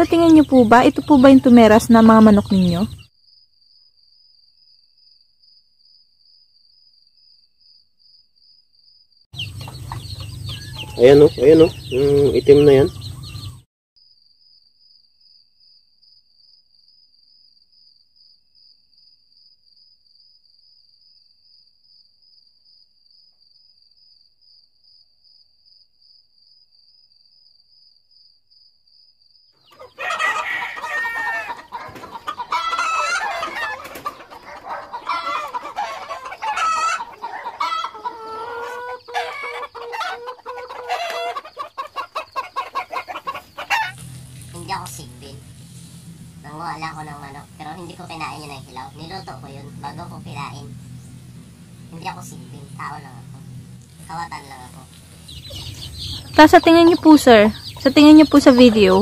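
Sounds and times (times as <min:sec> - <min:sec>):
chickens squawking: 0:09.4 - 0:13.6, 0:29.6 - 0:59.0
rooster crowing: 0:29.6 - 0:59.0.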